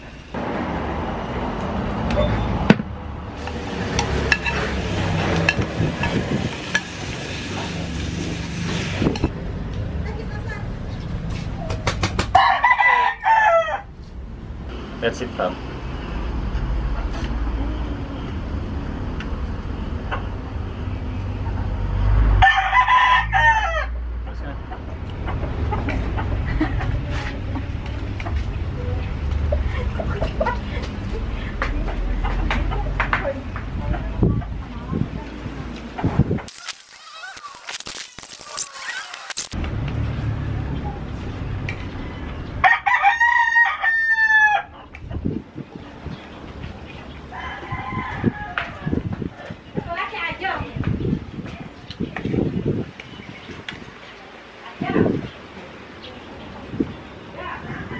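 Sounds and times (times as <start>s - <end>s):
rooster crowing: 12.3s - 13.9s, 22.4s - 24.0s, 42.6s - 44.7s, 47.3s - 49.0s.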